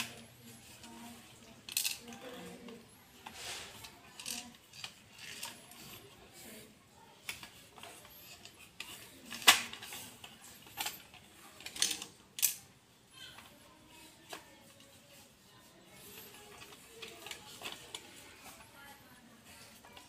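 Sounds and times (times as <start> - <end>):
plastic toy clicks and knocks: 0.0 - 6.1, 7.2 - 13.5, 16.1 - 18.7.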